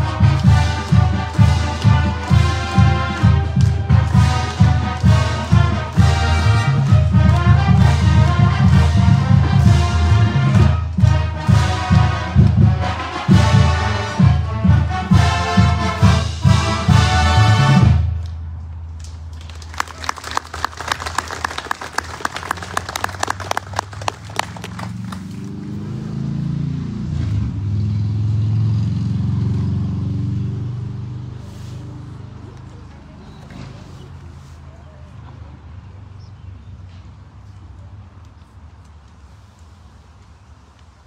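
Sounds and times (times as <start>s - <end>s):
brass band music: 0.0s - 18.2s
audience applauding: 19.3s - 25.5s.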